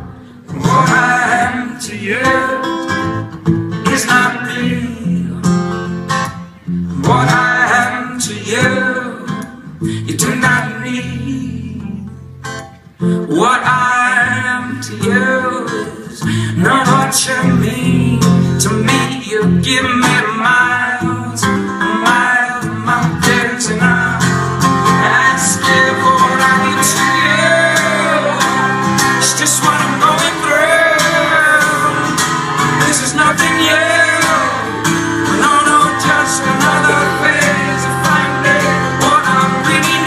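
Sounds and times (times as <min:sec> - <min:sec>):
man singing: 0:00.0 - 0:03.1, 0:03.8 - 0:05.9, 0:06.9 - 0:12.2, 0:13.0 - 0:40.0
strummed acoustic guitar: 0:00.0 - 0:40.0.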